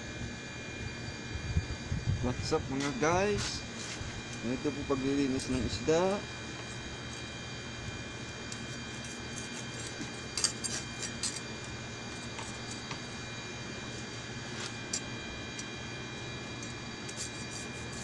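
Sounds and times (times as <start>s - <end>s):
steady background hum: 0.0s - 18.0s
knife scraping fish scales: 8.5s - 11.4s, 16.6s - 18.0s.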